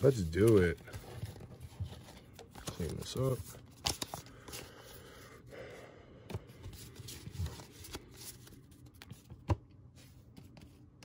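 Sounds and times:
trading cards rustling: 0.0s - 5.2s, 6.3s - 10.9s.

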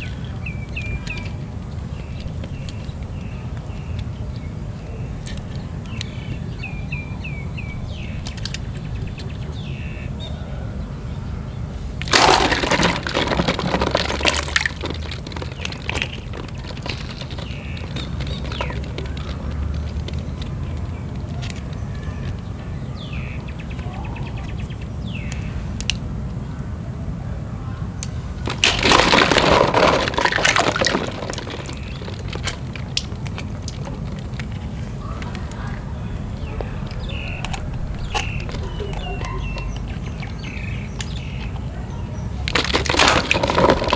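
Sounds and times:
plastic balls clattering in water: 0.0s - 4.2s, 7.9s - 9.8s, 12.0s - 23.4s, 28.4s - 41.7s, 42.3s - 43.9s
bird chirps: 0.0s - 11.7s, 15.6s - 25.6s, 35.0s - 42.4s
steady low hum: 30.0s - 42.5s.

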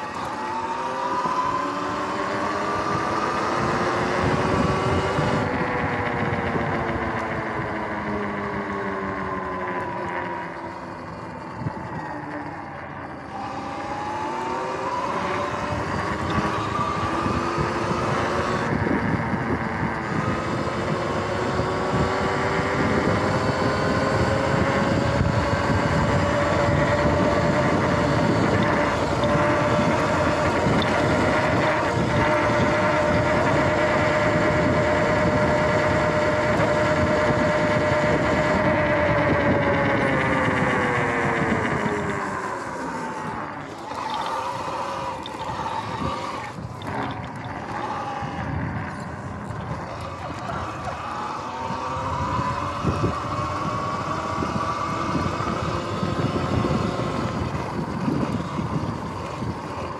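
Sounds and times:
electric motorbike motor whine: 0.0s - 59.9s
wind: 0.0s - 59.9s.

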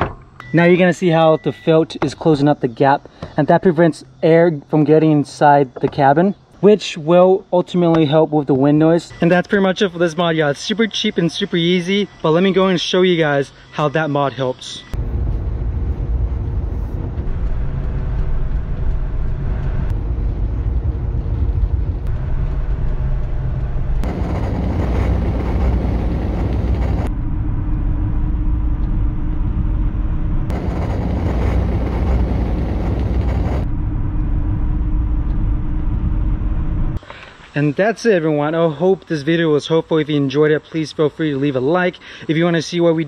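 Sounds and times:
road and wind noise in car: 14.9s - 37.0s.

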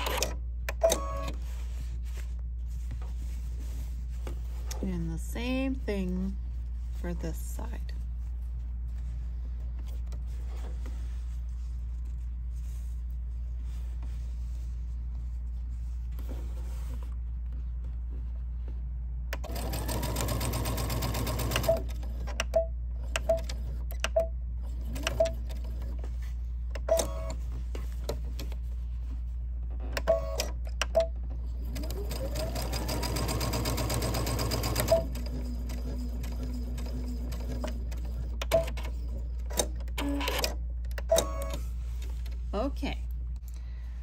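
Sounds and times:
sewing machine stitching: 19.4s - 22.0s, 31.6s - 40.6s.

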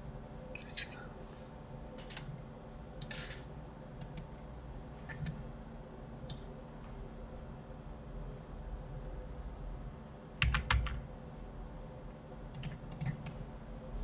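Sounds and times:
faint steady hum: 0.0s - 14.0s
computer mouse clicks: 4.0s - 4.3s, 5.1s - 5.4s, 12.5s - 13.4s.

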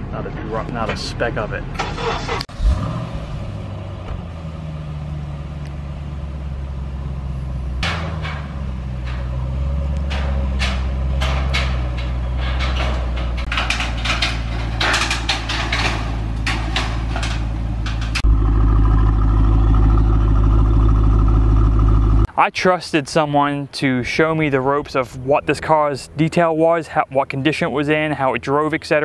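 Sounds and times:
car engine idling: 1.7s - 22.3s
metal ramps clanking and rattling: 4.0s - 22.3s.

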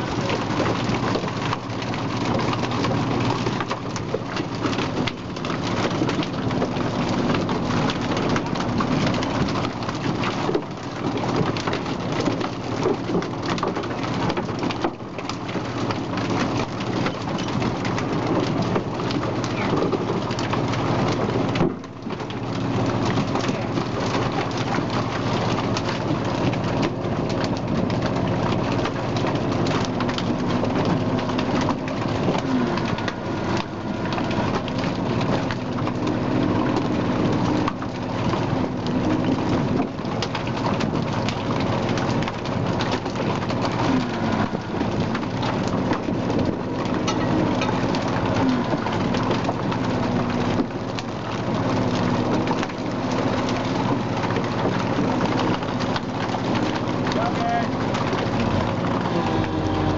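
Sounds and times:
fish thrashing: 0.0s - 59.9s
water streaming off net: 0.0s - 59.9s
steady machine hum: 20.2s - 59.9s.

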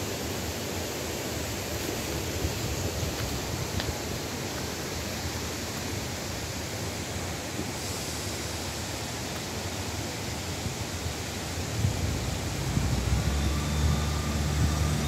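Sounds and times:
wind buffeting microphone: 11.7s - 15.0s.

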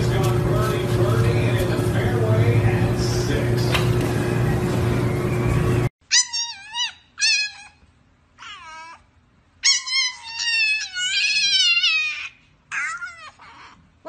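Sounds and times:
puppy howling: 6.1s - 7.8s, 8.4s - 13.9s.

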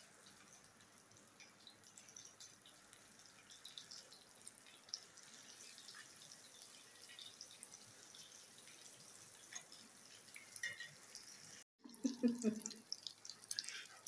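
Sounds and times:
food sizzling in hot oil: 0.0s - 14.0s.

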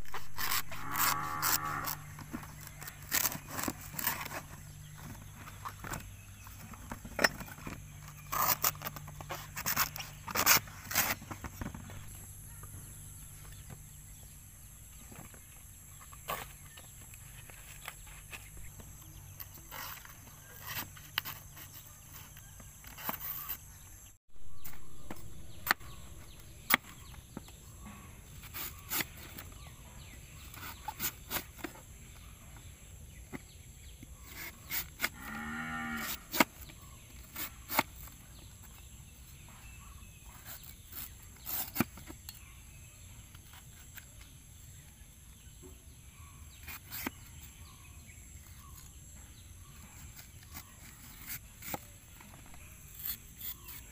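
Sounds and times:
knife cutting banana stem: 0.0s - 6.0s, 40.3s - 42.4s, 46.6s - 47.6s
cow mooing: 0.7s - 2.0s.

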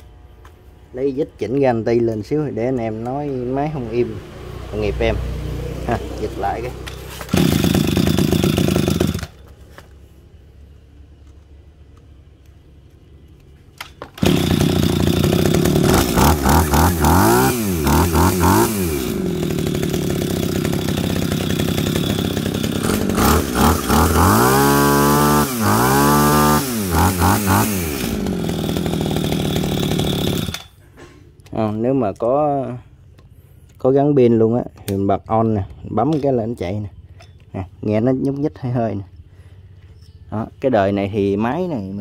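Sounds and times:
small two-stroke engine running: 4.7s - 9.6s, 14.1s - 30.8s
engine throttle blips: 14.2s - 30.7s.

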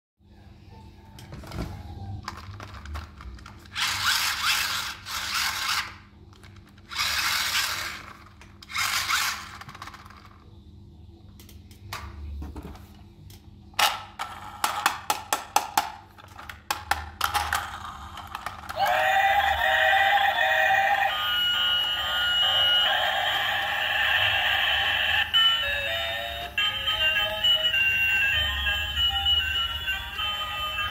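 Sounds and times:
plastic toys scraping and rattling: 1.4s - 10.5s, 16.1s - 18.8s.

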